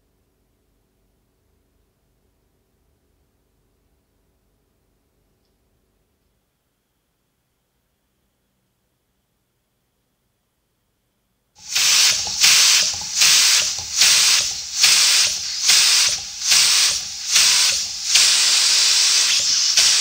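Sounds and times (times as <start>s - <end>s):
pneumatic shears air hiss: 11.6s - 20.0s.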